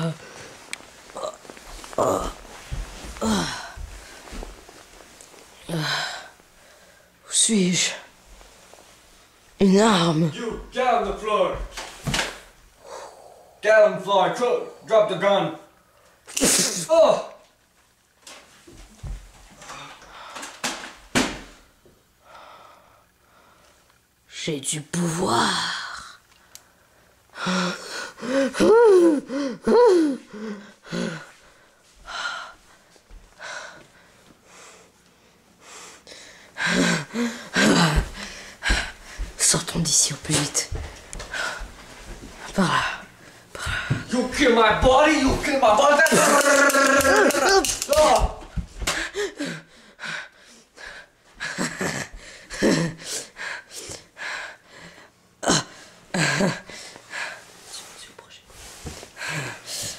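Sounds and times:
young voices gasping and grunting: 1.1 - 2.5, 3.2 - 3.9, 27.4 - 31.3, 36.6 - 39.0, 46.0 - 48.2, 48.8 - 50.1, 51.4 - 53.4, 55.4 - 56.8
person wailing groans: 1.2 - 2.5, 3.2 - 3.8, 27.4 - 31.3, 36.6 - 38.2, 45.9 - 48.4, 51.5 - 53.1, 55.4 - 56.6.

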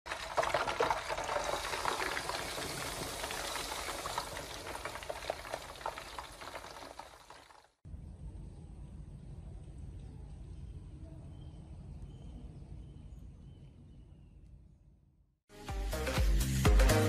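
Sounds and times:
hot oil sizzling and popping: 0.1 - 7.8.

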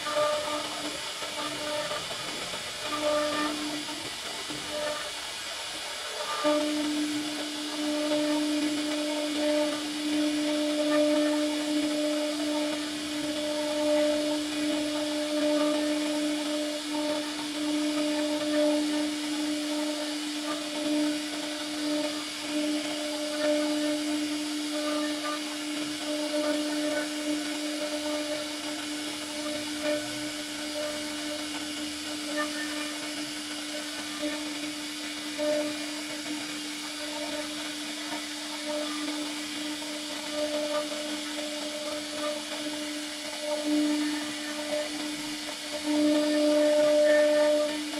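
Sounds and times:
bit cutting wood hiss: 0.0 - 47.9
router spindle whining: 0.0 - 47.9.

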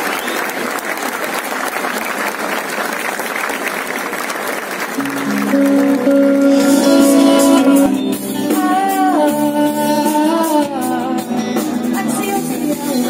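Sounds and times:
crowd applauding: 0.0 - 8.2
instruments playing held notes: 5.0 - 9.3.

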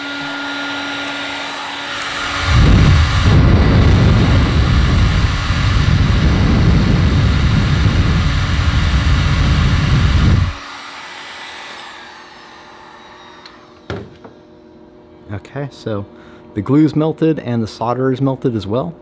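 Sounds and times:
heat gun blowing with low rumble: 0.0 - 15.1.

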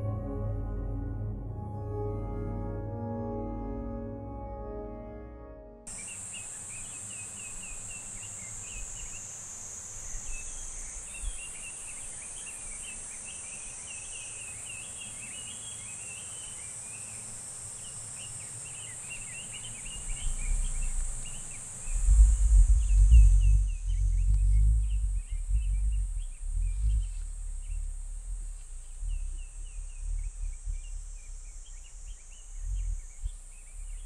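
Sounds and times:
low rumbles: 0.0 - 5.8, 20.0 - 34.0
small birds chirping: 5.9 - 34.0
steady high hiss: 5.9 - 34.0.

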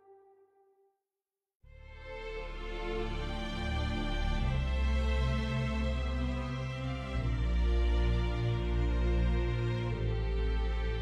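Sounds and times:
slow sustained background music: 1.7 - 11.0
deep bass: 1.8 - 11.0.

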